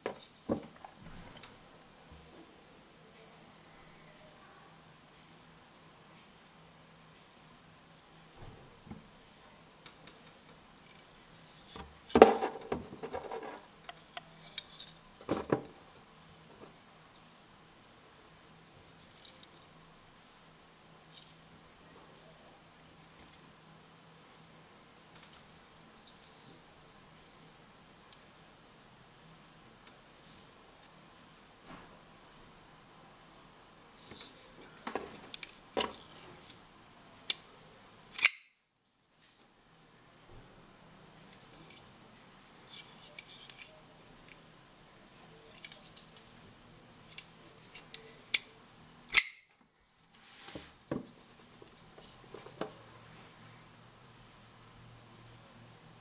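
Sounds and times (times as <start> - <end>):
knife blade snapping open: 49.1 - 49.4.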